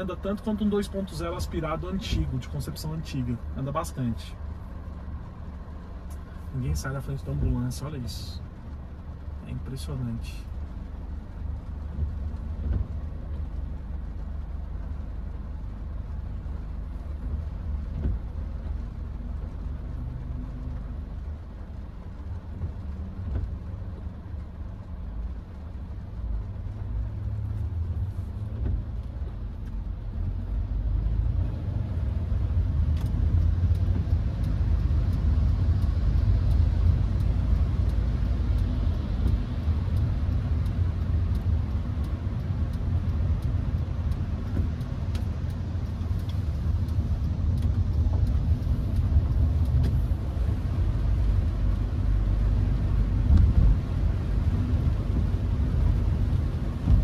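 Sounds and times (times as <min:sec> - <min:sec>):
engine and road rumble: 0:00.0 - 0:57.0
rain taps: 0:00.0 - 0:57.0.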